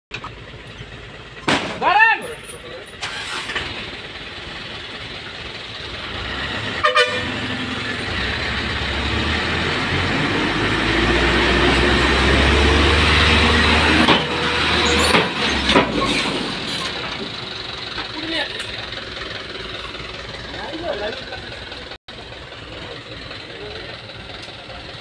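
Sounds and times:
truck engine revving under load: 2.8 - 25.0
truck horn toot: 6.6 - 7.9.

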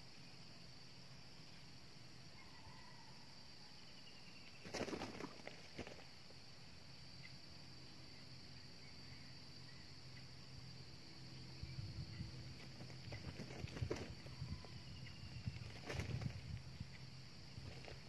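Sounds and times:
rustling noise: 15.5 - 16.7.

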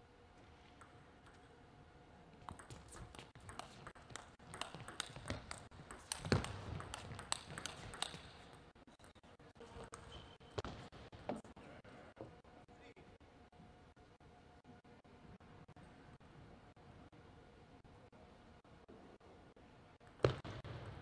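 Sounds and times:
table tennis ball clicks: 2.4 - 9.2.

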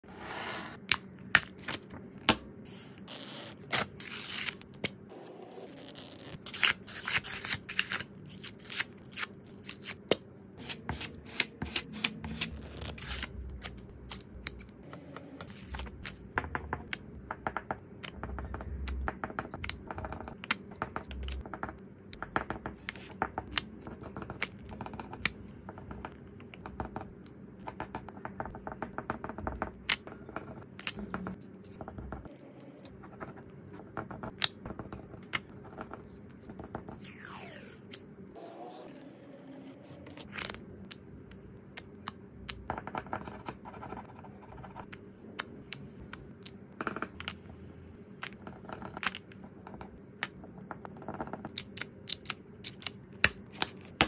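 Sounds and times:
stickers being peeled: 5.7 - 14.8.

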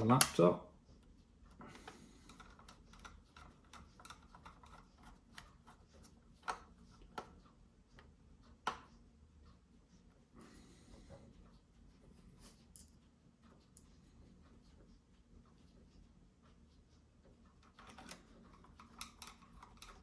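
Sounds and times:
screwdriver clicking and scraping: 1.8 - 7.4, 17.6 - 20.0.

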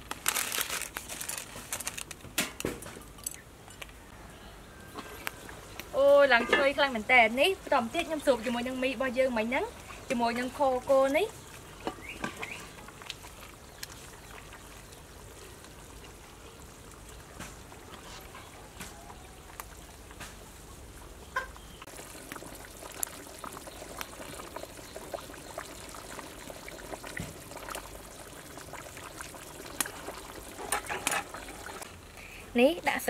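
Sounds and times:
liquid trickling and dribbling: 7.7 - 31.9.

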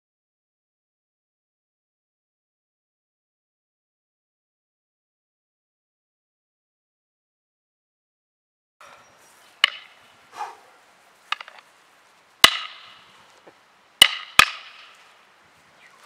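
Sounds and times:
fighting sticks clacking: 9.6 - 10.6, 11.3 - 11.7, 12.4 - 13.1, 14.0 - 15.0.

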